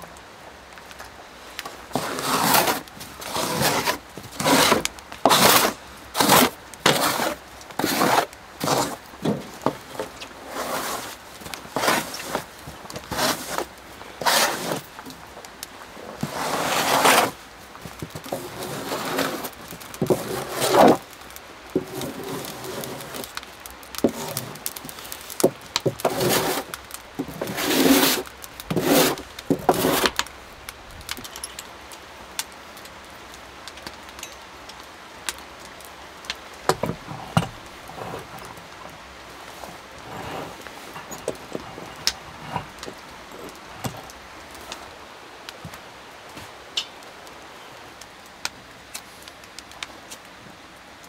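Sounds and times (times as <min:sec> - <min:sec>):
snow scraping and swishing: 0:01.8 - 0:15.0, 0:16.0 - 0:17.5, 0:18.2 - 0:21.1, 0:21.8 - 0:23.4, 0:24.0 - 0:25.3, 0:25.9 - 0:30.2, 0:37.0 - 0:38.6, 0:39.3 - 0:43.5.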